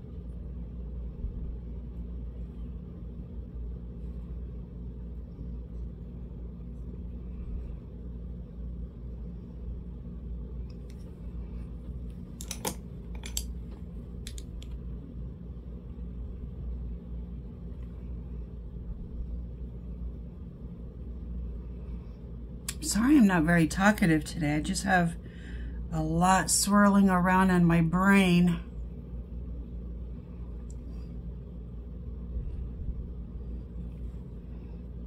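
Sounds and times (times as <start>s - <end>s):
low background hum: 0.0s - 35.0s
light clicks and taps: 12.4s - 14.8s.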